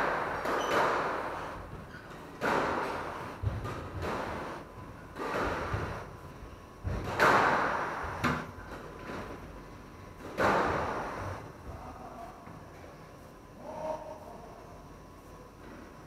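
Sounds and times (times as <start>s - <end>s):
squash ball hitting court walls: 0.0s - 6.1s, 6.8s - 9.4s, 10.2s - 11.5s.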